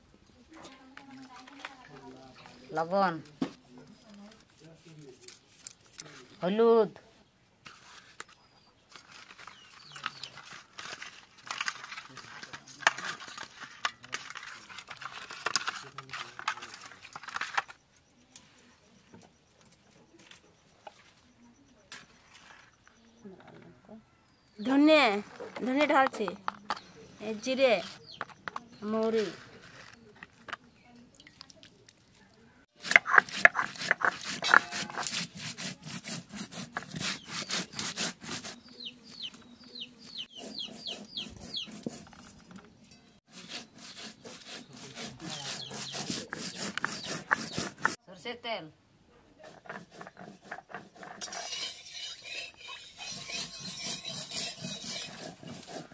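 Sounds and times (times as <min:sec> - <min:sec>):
wet squelching of hand mixing fish: 0:30.9 - 0:34.2
stone grinding spice seeds: 0:32.8 - 0:38.6, 0:43.3 - 0:48.0, 0:49.5 - 0:55.9
bird peeping: 0:38.5 - 0:41.8.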